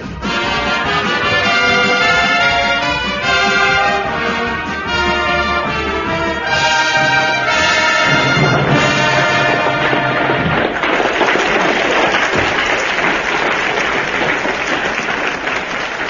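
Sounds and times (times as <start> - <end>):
orchestral music with brass: 0.0 - 10.8.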